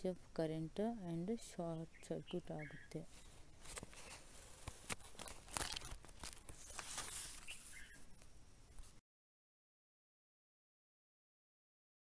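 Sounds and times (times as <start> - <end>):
phone handling rustling: 3.6 - 7.6.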